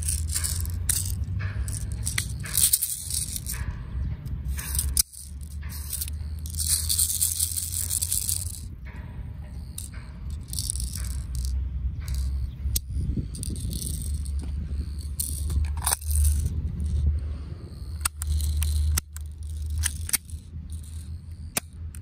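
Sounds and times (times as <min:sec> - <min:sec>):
plastic parts rattling: 0:00.0 - 0:08.7, 0:09.5 - 0:22.0
low rumble: 0:00.0 - 0:22.0
sharp clicks: 0:17.8 - 0:22.0.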